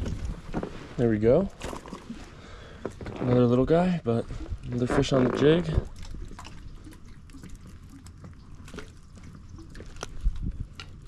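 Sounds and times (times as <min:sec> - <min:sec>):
water dripping: 0:04.2 - 0:11.0.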